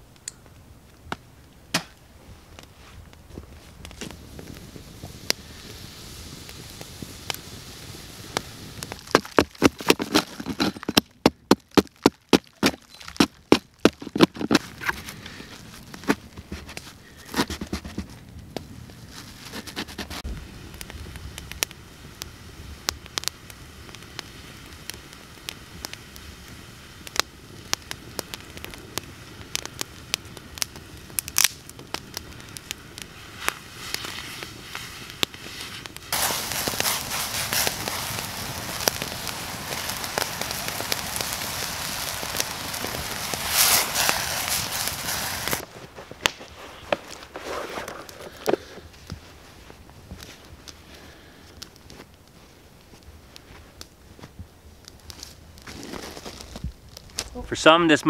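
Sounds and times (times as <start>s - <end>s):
campfire crackling and popping: 0.0s - 58.0s
steam hissing from metal bowl: 4.1s - 9.2s, 32.7s - 45.6s.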